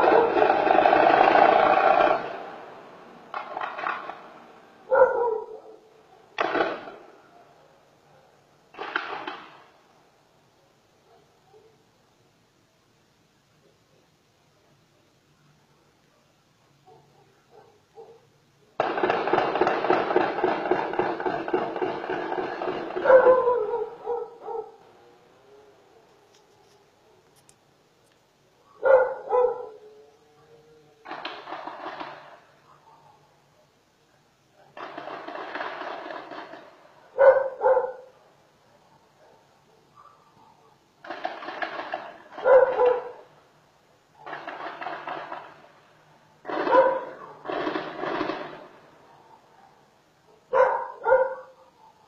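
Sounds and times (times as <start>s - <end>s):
dog barking: 0.0s - 0.5s, 4.9s - 6.4s, 7.3s - 8.5s, 10.7s - 11.9s, 16.1s - 18.4s, 22.9s - 24.8s, 28.6s - 30.5s, 32.6s - 33.7s, 37.1s - 40.8s, 42.3s - 43.3s, 46.5s - 47.5s, 49.1s - 52.0s
gunfire bursts with echo: 0.0s - 4.5s, 6.4s - 7.2s, 8.7s - 9.8s, 18.8s - 24.0s, 31.0s - 32.6s, 34.8s - 37.0s, 41.0s - 43.3s, 44.2s - 45.8s, 46.4s - 49.0s.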